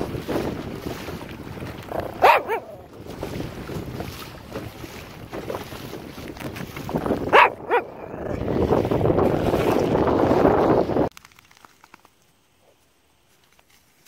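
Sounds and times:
wind noise on microphone: 0.0s - 11.1s
small dog barking: 2.0s - 2.9s, 7.3s - 8.3s.

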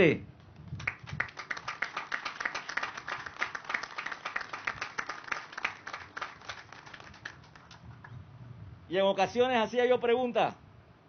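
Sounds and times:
audience clapping: 0.7s - 8.1s.

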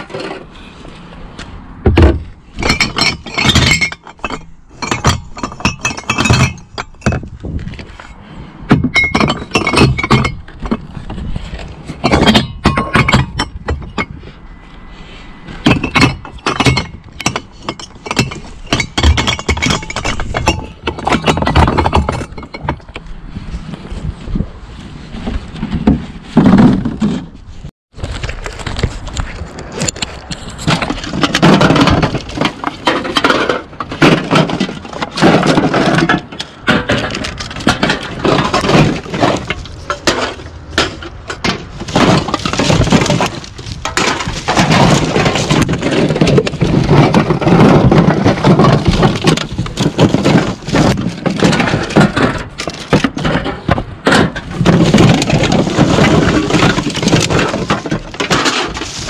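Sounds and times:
cans and bottles clattering: 2.0s - 7.3s, 8.7s - 10.8s, 30.6s - 59.0s.

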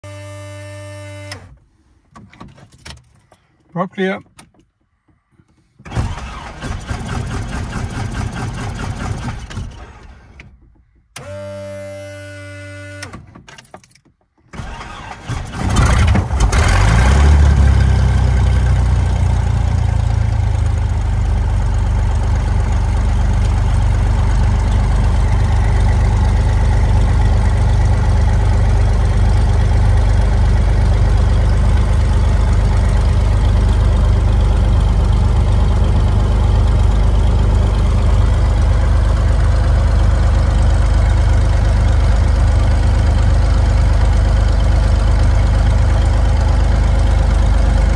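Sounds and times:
aircraft engine idling: 18.0s - 47.9s.

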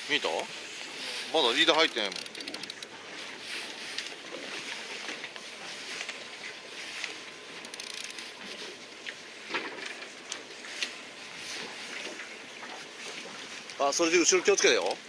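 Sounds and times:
wind and sea water hissing: 0.0s - 15.0s
fishing reel ticking: 1.4s - 2.9s, 7.6s - 8.4s.

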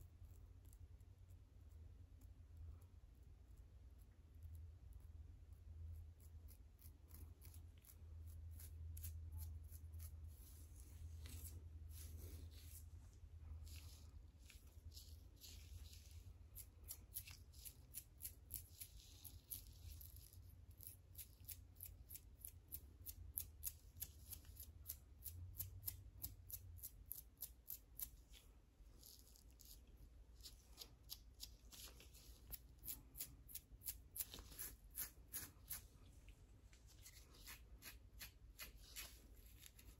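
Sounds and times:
fingernails scratching scalp: 6.0s - 13.0s, 13.6s - 36.0s, 36.9s - 39.9s.

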